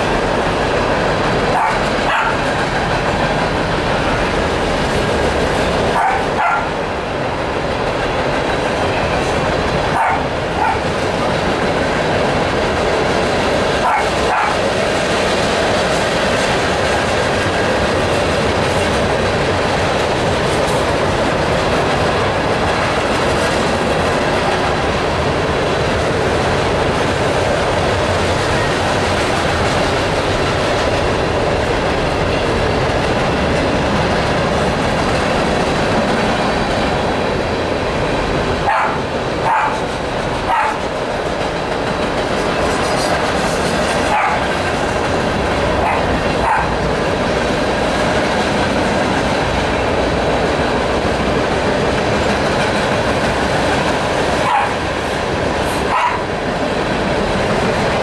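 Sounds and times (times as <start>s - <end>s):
freight train wheels on rails: 0.0s - 58.0s
dog barking: 1.5s - 2.5s, 5.9s - 6.8s, 9.9s - 10.9s, 13.8s - 14.6s, 38.6s - 40.9s, 44.1s - 44.5s, 45.8s - 46.8s, 54.4s - 54.8s, 55.9s - 56.3s.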